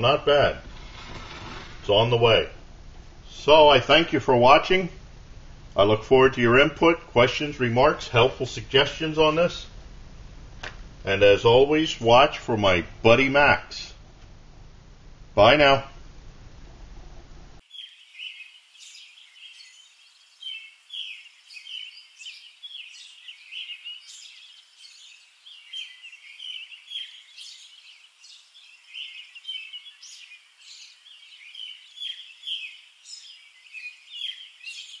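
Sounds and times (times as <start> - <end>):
birds chirping: 0.0 - 2.4, 17.6 - 35.0.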